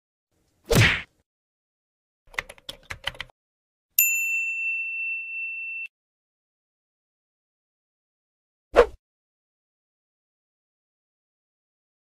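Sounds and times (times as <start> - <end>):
typing clicks: 2.3 - 3.3
bright ding: 4.0 - 5.9.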